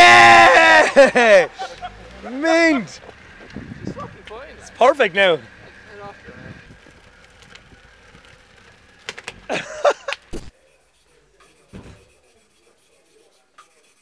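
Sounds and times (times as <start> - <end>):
man shouting: 0.0 - 1.5, 2.3 - 3.0.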